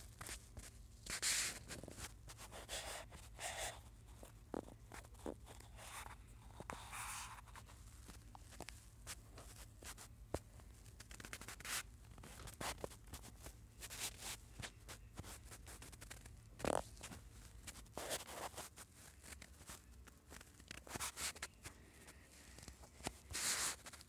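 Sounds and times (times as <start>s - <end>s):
faint low hum: 0.0s - 24.0s
finger scratching on touchscreen: 11.0s - 21.6s, 23.0s - 24.0s.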